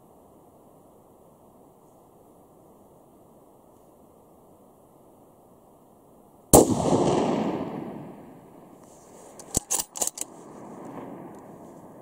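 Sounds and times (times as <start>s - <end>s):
rifle shot with echo: 6.5s - 8.8s, 10.0s - 12.0s
sharp clicks: 9.4s - 10.3s.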